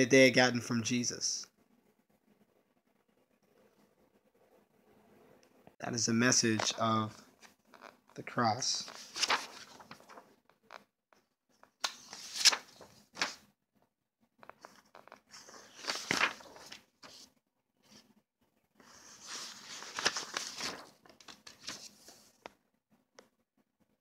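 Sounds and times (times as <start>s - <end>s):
paper rustling and crinkling: 6.4s - 10.9s, 11.6s - 13.5s, 14.4s - 18.0s, 18.8s - 22.6s.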